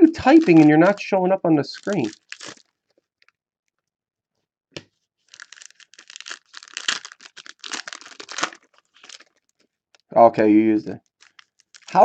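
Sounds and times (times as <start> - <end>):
foil wrapper tearing and crinkling: 0.0 - 1.1, 1.7 - 3.3, 5.2 - 10.1, 11.0 - 12.0.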